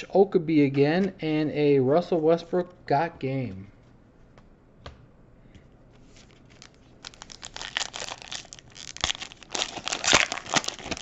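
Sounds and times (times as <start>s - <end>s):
foil pack tearing and crinkling: 6.5s - 11.0s.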